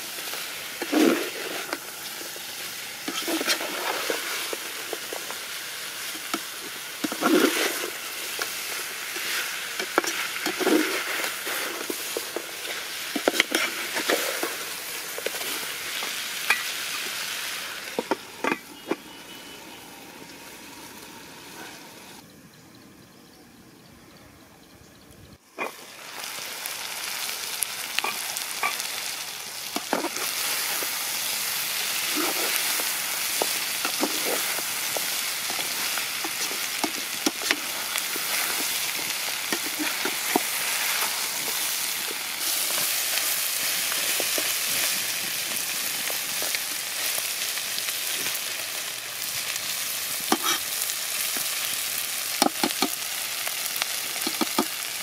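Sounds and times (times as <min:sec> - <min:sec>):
chicken sizzling in a pot: 0:00.0 - 0:22.2, 0:25.5 - 0:55.0.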